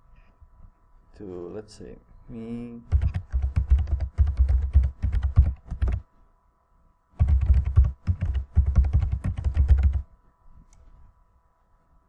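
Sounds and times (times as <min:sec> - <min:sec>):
fast typing on keyboard: 0:02.9 - 0:06.0, 0:07.2 - 0:10.1.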